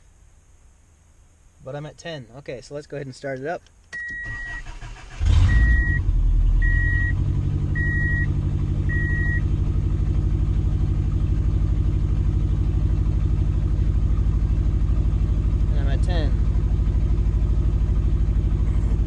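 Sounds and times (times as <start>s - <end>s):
car engine starting and idling: 3.9s - 19.0s
car warning chime beeping: 4.0s - 9.5s.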